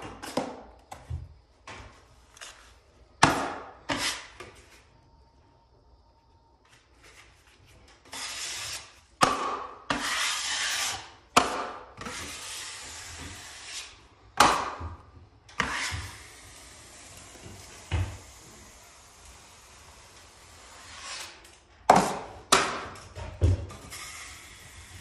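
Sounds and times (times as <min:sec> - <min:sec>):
taping knife scraping drywall: 0:03.5 - 0:04.5, 0:07.9 - 0:14.1, 0:15.5 - 0:22.3.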